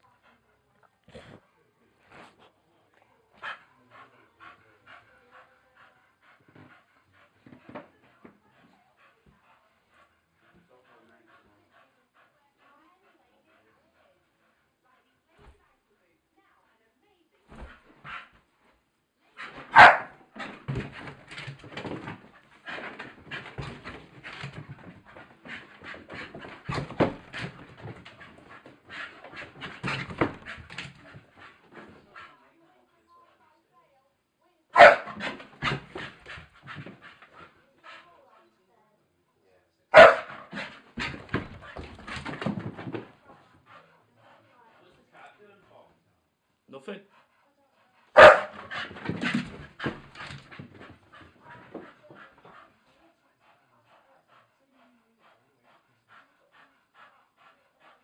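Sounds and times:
dog panting: 0.0 - 15.1, 17.5 - 18.5, 19.3 - 33.5, 34.8 - 38.7, 40.0 - 58.0.

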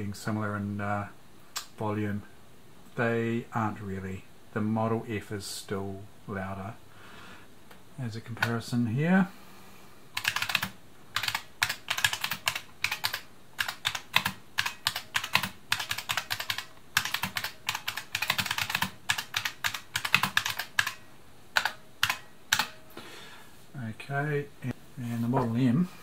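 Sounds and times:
clattery keyboard typing: 10.2 - 21.0, 21.6 - 22.8.

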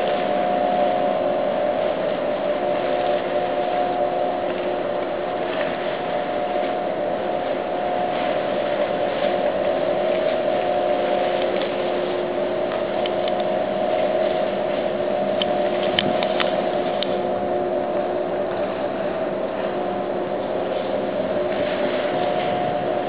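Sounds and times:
ship machinery droning hum: 0.0 - 23.0.

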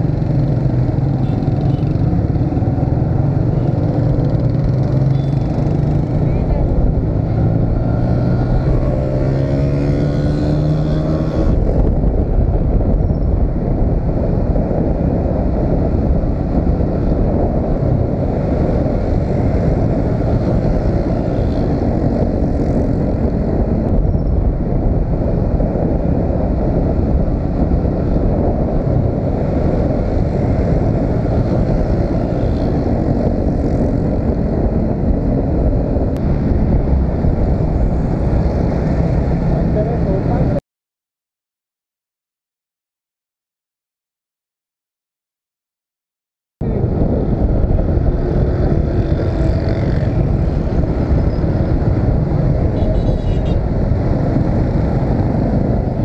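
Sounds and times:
motorcycle engine: 0.0 - 11.6
road noise: 0.0 - 40.6, 46.6 - 56.0.

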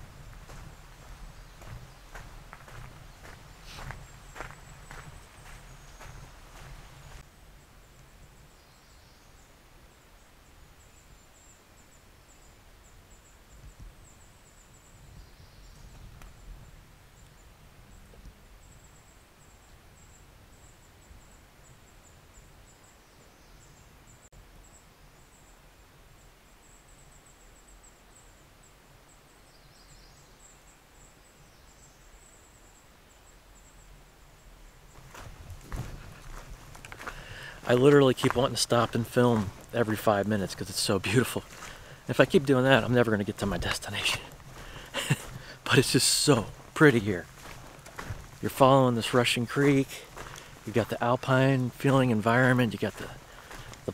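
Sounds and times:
bird chirps: 0.5 - 7.2.

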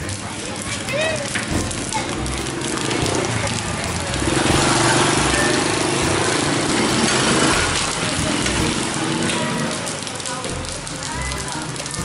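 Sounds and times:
water splashing onto wet concrete: 0.0 - 12.0
small engine running: 1.6 - 9.6.

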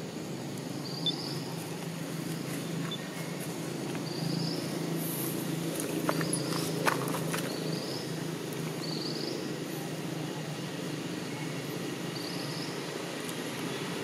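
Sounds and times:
constant low hum: 0.0 - 14.0
faint high chirps: 0.8 - 1.6.

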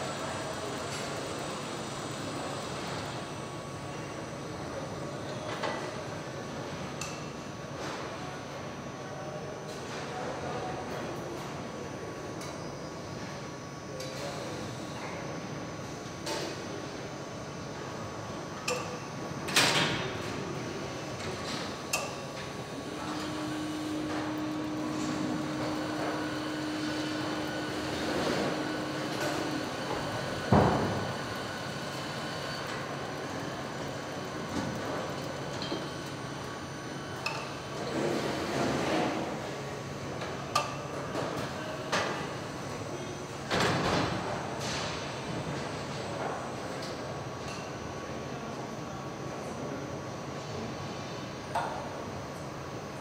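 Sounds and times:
steady hum: 20.3 - 37.9
machinery noise: 22.4 - 36.5.

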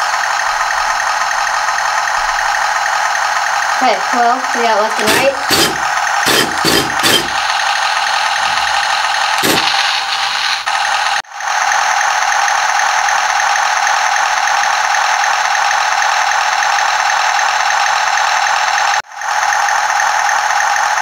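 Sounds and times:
toy speaker engine buzzing: 0.0 - 11.2.

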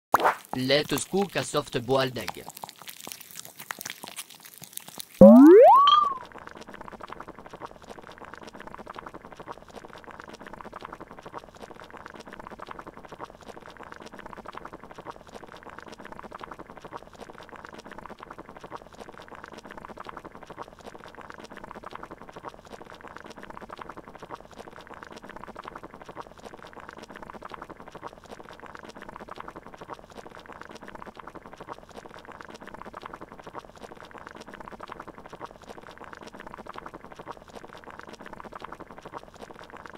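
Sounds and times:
water boiling: 0.4 - 4.6, 6.8 - 39.9.

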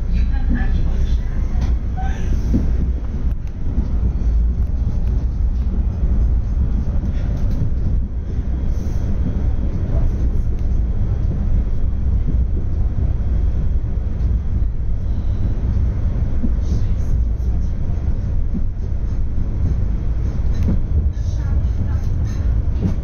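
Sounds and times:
tram rumbling on rails: 0.0 - 23.0.

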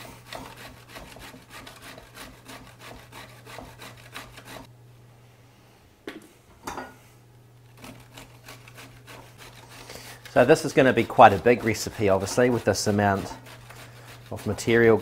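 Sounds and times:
vegetables grated on metal grater: 0.2 - 4.7, 7.8 - 15.0.

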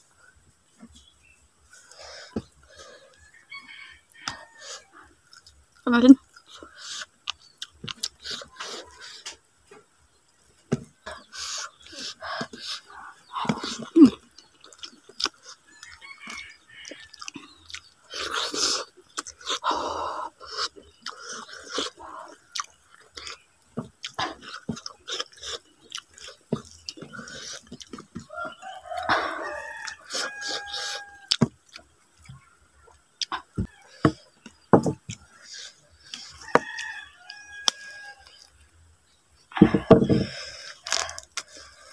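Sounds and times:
wet mouth chewing clicks: 6.3 - 8.5, 22.5 - 23.4.

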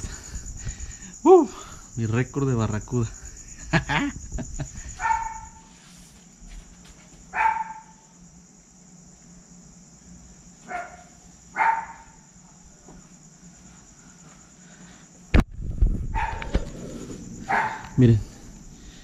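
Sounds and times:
crickets chirring: 0.0 - 19.0
dog barking: 5.0 - 5.7, 7.3 - 8.0, 10.7 - 12.3, 16.2 - 16.6, 17.4 - 18.0.

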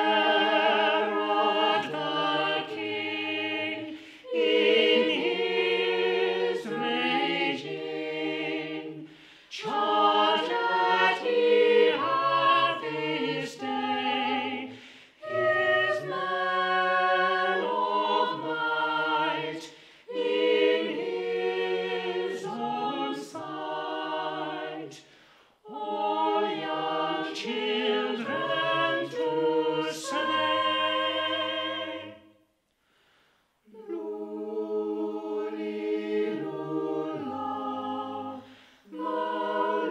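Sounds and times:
choir singing unaccompanied: 0.0 - 32.4, 33.7 - 39.9.

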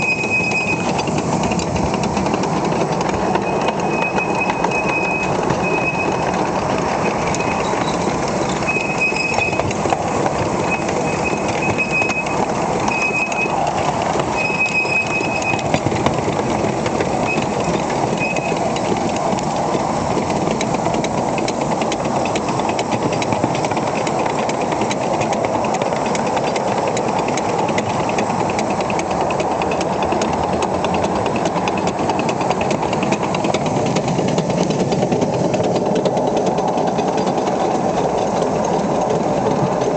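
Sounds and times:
miniature steam train running: 0.0 - 39.9
wheels ticking on rail joints: 0.0 - 39.9
short high squeals: 8.6 - 9.6, 14.4 - 15.6.

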